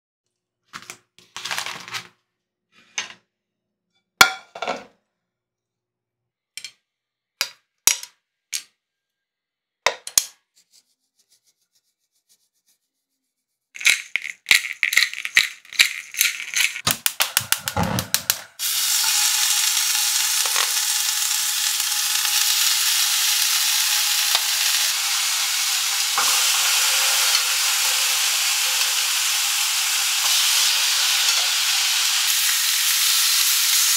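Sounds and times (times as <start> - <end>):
utensils and dishes clicking: 13.8 - 33.9
meat sizzling in a frying pan: 18.6 - 33.9
seasoning crackling onto meat: 18.6 - 33.9.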